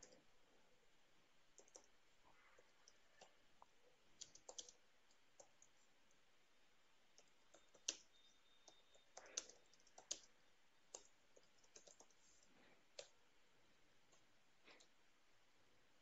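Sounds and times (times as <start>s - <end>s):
faint keyboard typing: 0.0s - 0.3s, 1.4s - 6.3s, 7.1s - 13.2s, 14.0s - 15.0s.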